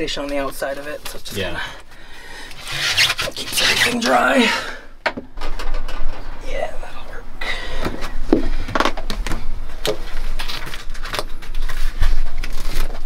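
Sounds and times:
rubbing or scraping: 0:02.5 - 0:04.4.

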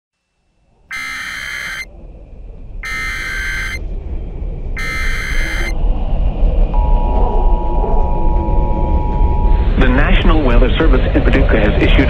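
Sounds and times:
low rumble: 0:00.6 - 0:12.0
buzzy data bursts: 0:00.9 - 0:01.9, 0:02.8 - 0:03.8, 0:04.8 - 0:05.7.

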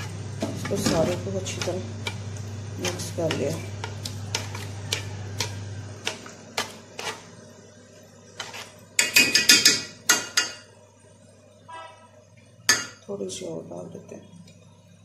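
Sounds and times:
spoon scraping steel pot: 0:03.8 - 0:07.3, 0:08.4 - 0:09.8.

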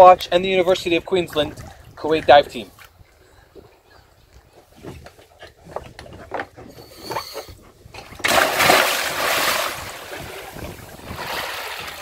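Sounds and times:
big splash into water: 0:08.2 - 0:12.0.

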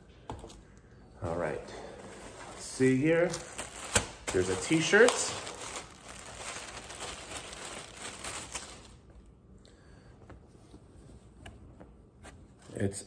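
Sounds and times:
plastic bag crinkling: 0:02.1 - 0:09.1.

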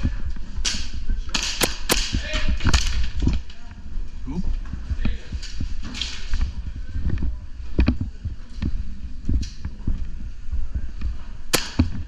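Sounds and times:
sharp crack: 0:00.6 - 0:03.2, 0:11.5 - 0:12.0
footsteps on hard floor: 0:04.0 - 0:12.0.

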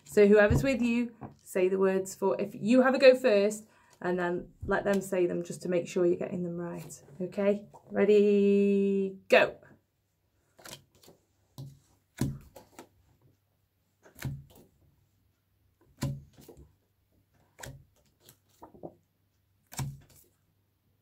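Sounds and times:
paper cards tapping and slapping: 0:10.5 - 0:13.0, 0:14.0 - 0:14.8, 0:15.8 - 0:16.8, 0:17.4 - 0:20.4.

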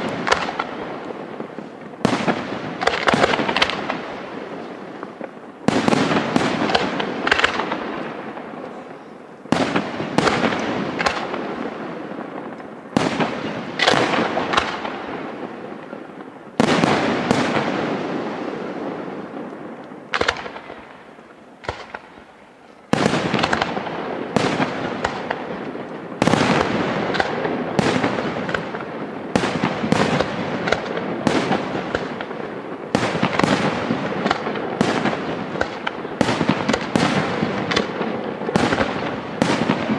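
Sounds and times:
firework bangs with echo: 0:00.0 - 0:39.9.

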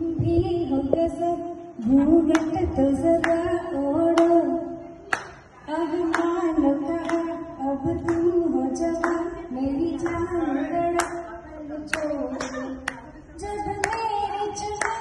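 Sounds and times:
woman singing through loudspeaker: 0:00.0 - 0:15.0
sharp clapping beat: 0:02.3 - 0:03.5, 0:05.1 - 0:09.3, 0:09.9 - 0:11.3, 0:13.6 - 0:15.0.

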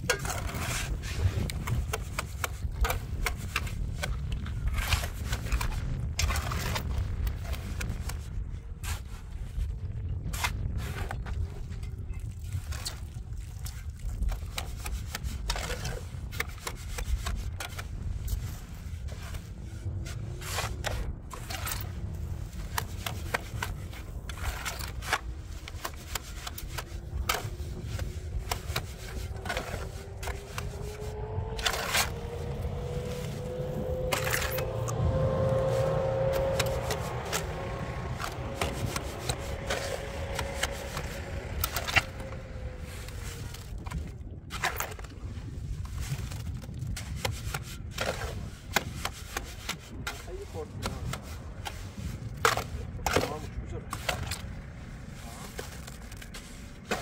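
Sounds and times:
scrapes and knocks: 0:13.8 - 0:45.2
low rumble: 0:17.4 - 0:47.2
faint rising hum: 0:29.3 - 0:43.8.

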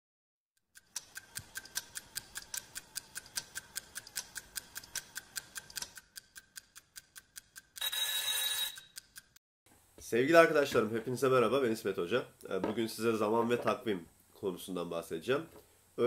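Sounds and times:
clock ticking fast: 0:00.7 - 0:07.9.

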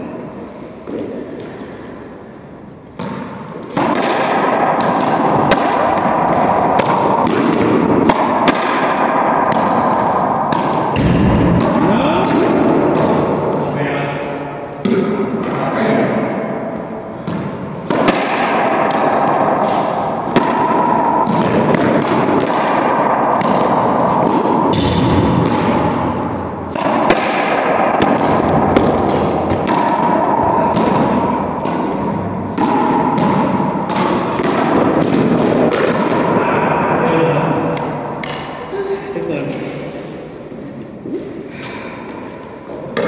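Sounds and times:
ball hitting racquets and walls: 0:00.0 - 0:38.7, 0:39.4 - 0:43.0.

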